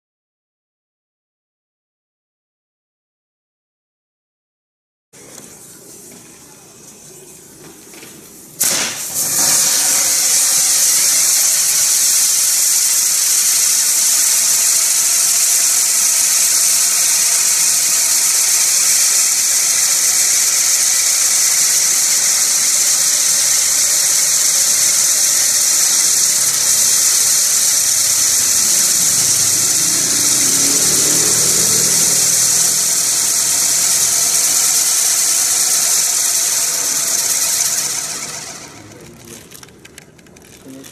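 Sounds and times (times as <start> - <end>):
firework wheel hissing: 8.6 - 39.5.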